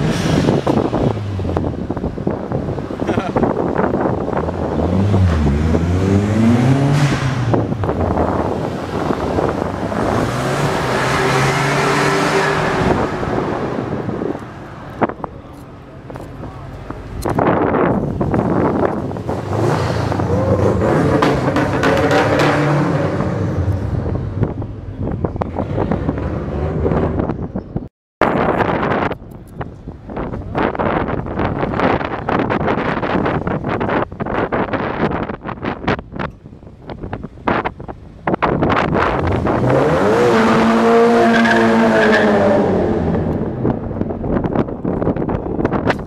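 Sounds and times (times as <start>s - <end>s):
wind buffeting microphone: 0.0s - 46.0s
car engine revving hard: 4.3s - 14.0s, 18.6s - 23.8s, 38.7s - 43.7s.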